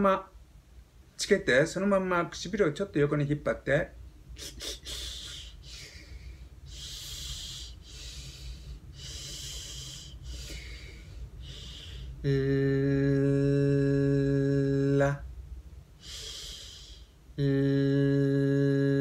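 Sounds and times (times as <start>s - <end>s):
man humming: 4.4s - 8.2s, 11.4s - 15.3s, 16.0s - 19.0s
man breathing with hissing air: 4.4s - 12.3s, 16.0s - 17.2s.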